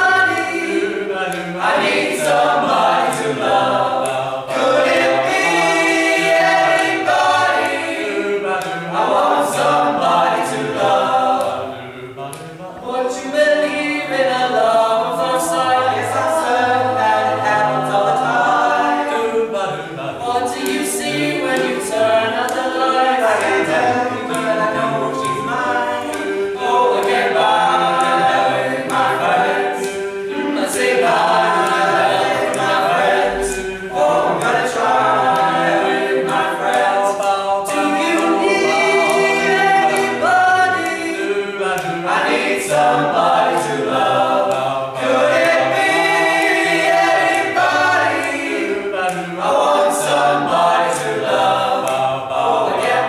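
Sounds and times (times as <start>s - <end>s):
boys singing in harmony: 0.0s - 53.0s.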